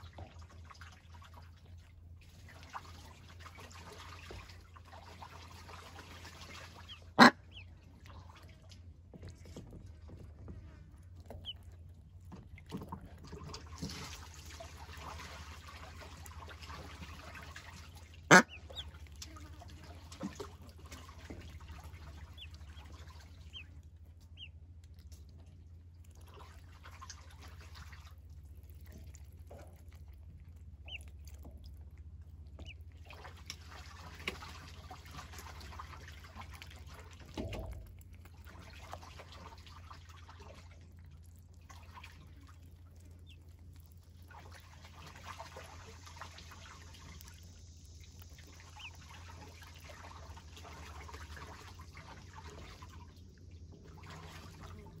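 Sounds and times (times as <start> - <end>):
ducklings splashing in water: 0.0 - 55.0
steady low hum: 0.0 - 55.0
ducklings peeping: 6.4 - 7.7, 11.3 - 11.8, 18.3 - 19.1, 21.6 - 24.6, 30.8 - 31.4, 32.6 - 32.8, 43.2 - 44.0, 48.4 - 49.5.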